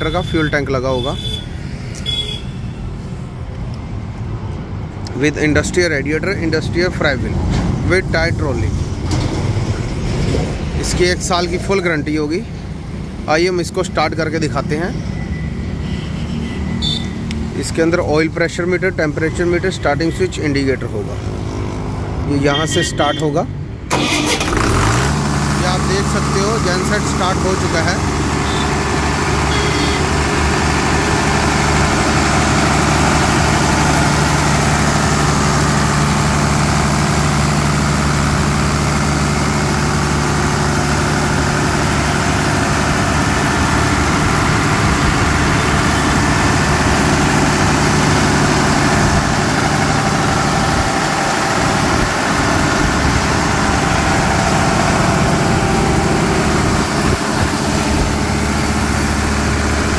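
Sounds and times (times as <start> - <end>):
diesel generator running: 23.9 - 59.9.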